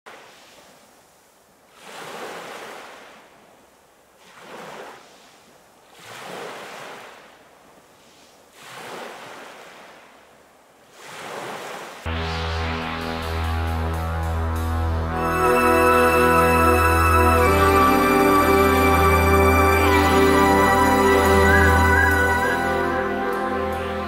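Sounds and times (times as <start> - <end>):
sea waves breaking on shore: 0.1 - 1.0, 1.7 - 12.1.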